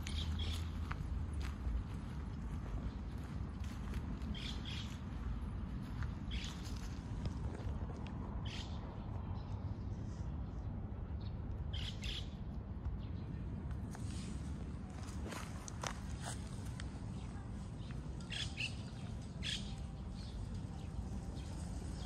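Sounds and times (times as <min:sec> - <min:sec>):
low outdoor rumble: 0:00.0 - 0:22.0
high bird calls: 0:18.2 - 0:19.8.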